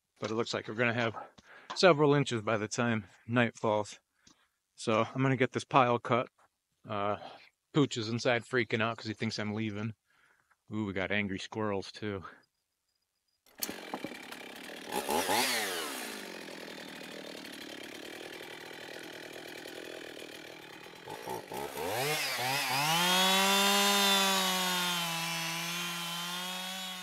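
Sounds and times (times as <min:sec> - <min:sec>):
chainsaw cutting logs: 0:13.5 - 0:27.0.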